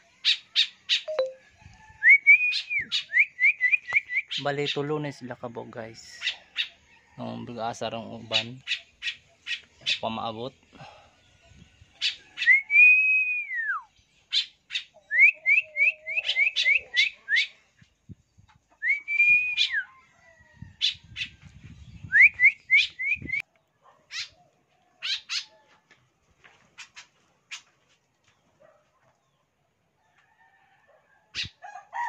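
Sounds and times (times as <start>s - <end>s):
person whistling bird calls: 2.0s - 4.3s, 12.4s - 13.9s, 15.1s - 17.5s, 18.8s - 19.9s, 22.0s - 23.4s.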